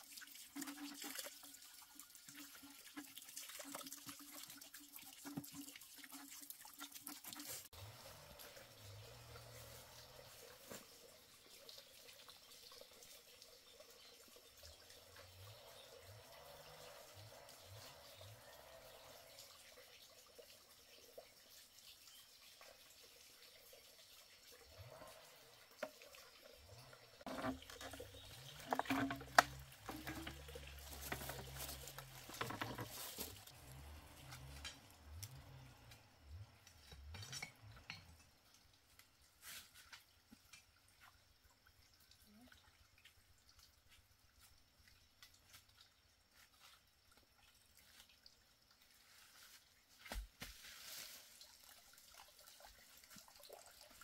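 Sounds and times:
water dripping and trickling: 0:00.0 - 0:54.0
knocks and clatter of handling: 0:27.3 - 0:33.4.

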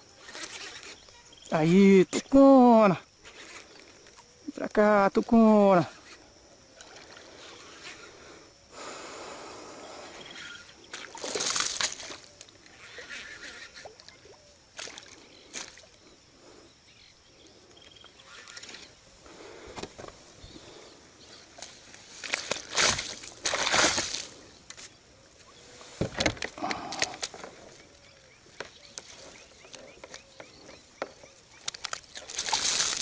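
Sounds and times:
water splashing and sloshing: 0:10.8 - 0:12.5, 0:13.8 - 0:16.0, 0:21.6 - 0:24.4, 0:31.6 - 0:33.0.

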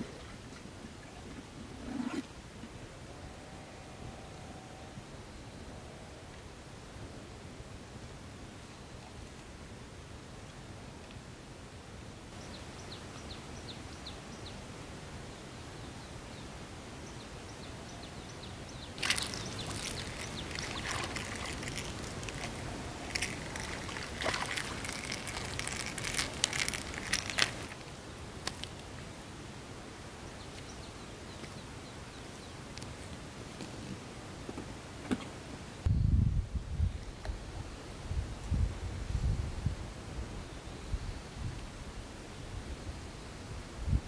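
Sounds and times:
hooked fish splashing in water: 0:19.0 - 0:27.8.

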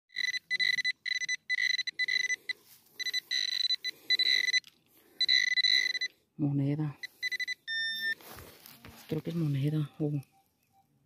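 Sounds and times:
metal detector beeping: 0:00.1 - 0:06.2, 0:07.0 - 0:08.3.

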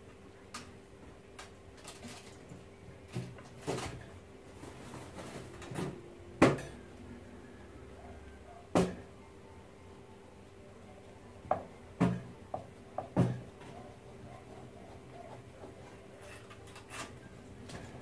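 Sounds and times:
faint steady hum: 0:00.0 - 0:18.0
utensils and cookware clattering: 0:05.0 - 0:06.9, 0:15.6 - 0:18.0.

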